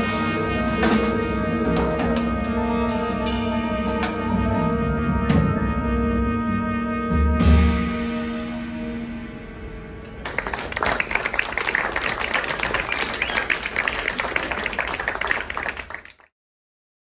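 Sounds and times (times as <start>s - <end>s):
jazz band final chord: 0.0s - 10.0s
audience applause: 10.2s - 16.3s.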